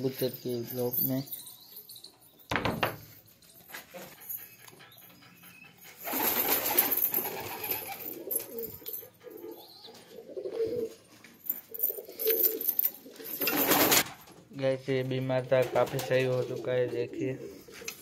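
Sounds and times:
pigeons cooing: 0:06.0 - 0:11.1, 0:11.7 - 0:13.6, 0:16.4 - 0:18.0.

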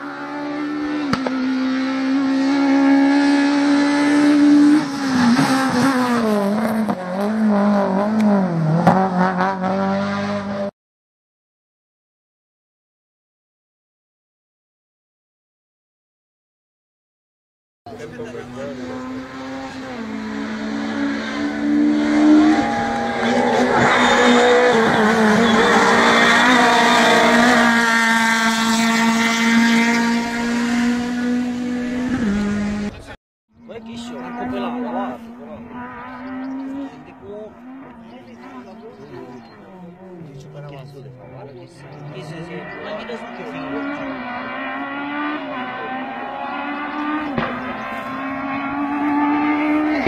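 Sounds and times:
rally car engine at high revs: 0:00.0 - 0:10.7, 0:17.9 - 0:33.2, 0:33.8 - 0:50.0.

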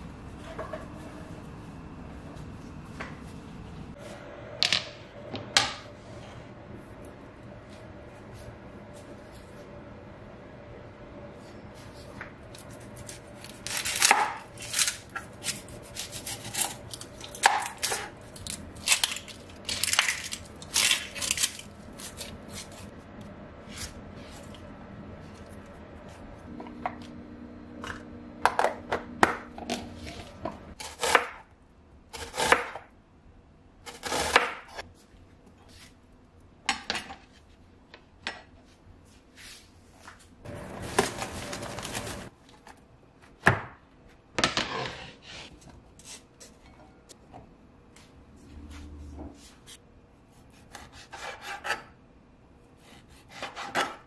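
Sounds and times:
onion skin crackling and rustling: 0:12.5 - 0:22.9, 0:40.7 - 0:42.4.

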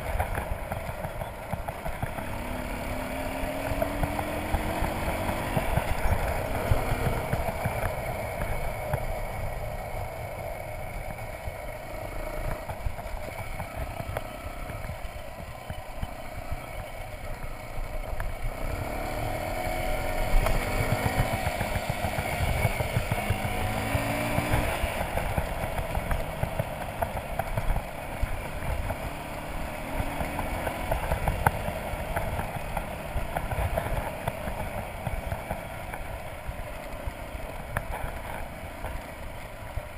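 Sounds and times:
motorcycle engine rumbling: 0:00.0 - 0:39.9.

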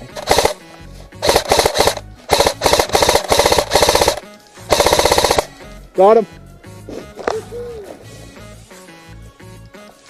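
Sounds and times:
airsoft rifle full-auto bursts: 0:00.0 - 0:00.6, 0:01.2 - 0:05.5.

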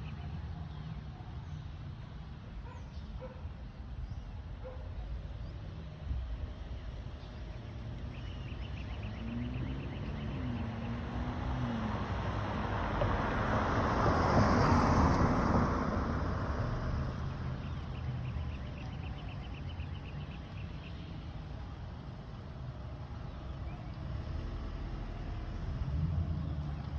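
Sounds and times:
car passing by: 0:08.0 - 0:26.9.

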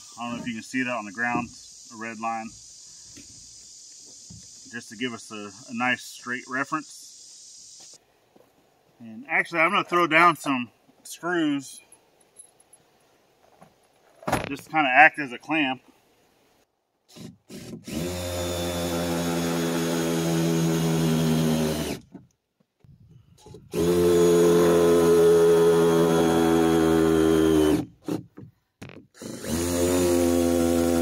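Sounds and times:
power drill driving screws: 0:17.1 - 0:22.1, 0:23.4 - 0:28.3, 0:29.1 - 0:31.0.

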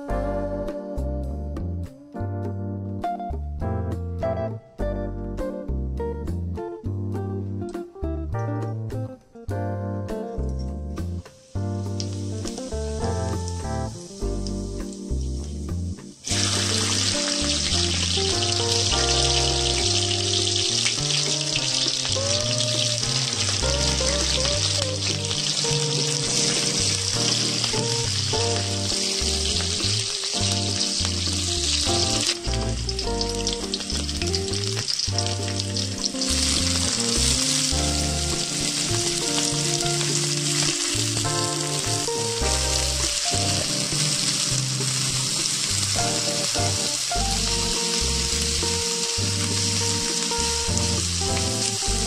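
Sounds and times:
background music: 0:00.0 - 0:52.0
oil sizzling in pan: 0:11.0 - 0:52.0
onions frying: 0:11.0 - 0:52.0.

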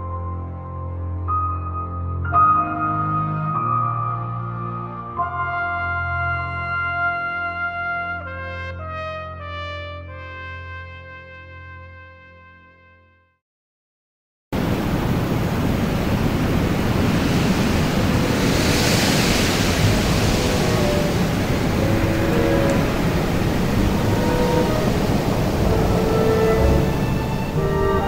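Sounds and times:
brass chord: 0:00.1 - 0:13.3, 0:19.8 - 0:28.0
ocean waves: 0:14.6 - 0:28.0
wind: 0:14.6 - 0:28.0.

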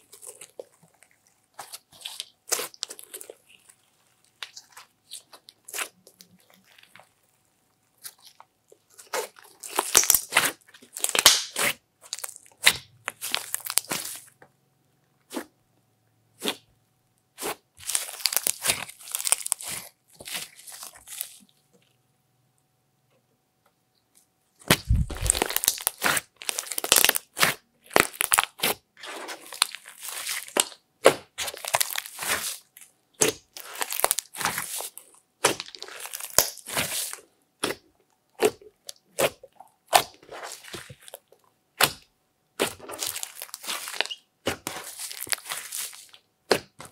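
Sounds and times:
slime crackling and popping: 0:09.0 - 0:14.3, 0:17.4 - 0:21.4, 0:24.7 - 0:46.9.

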